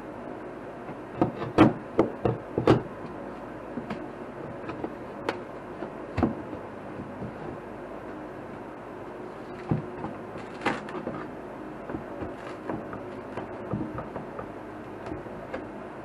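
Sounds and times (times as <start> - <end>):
steady hum: 0.0 - 16.0
tool prying wood paneling: 1.2 - 2.9, 9.6 - 14.6.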